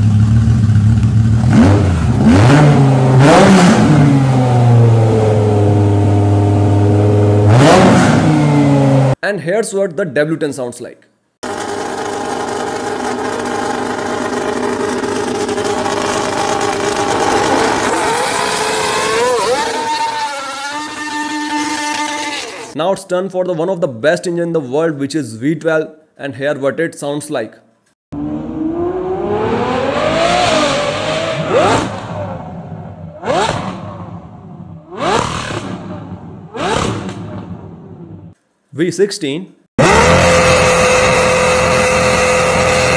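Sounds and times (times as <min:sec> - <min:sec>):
car engine exhaust running: 0:00.0 - 0:07.7, 0:11.4 - 0:19.4, 0:39.8 - 0:42.9.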